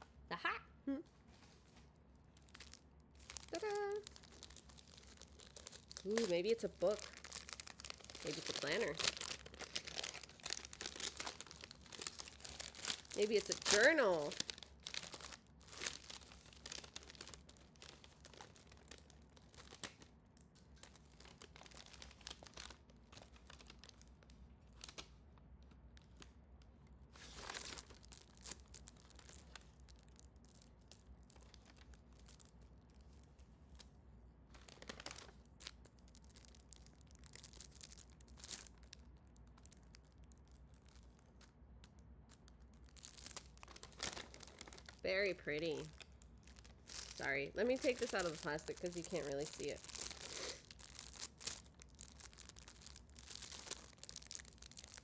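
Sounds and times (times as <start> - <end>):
gift wrapping tearing and rustling: 1.3 - 25.1, 27.0 - 33.9, 34.5 - 55.0.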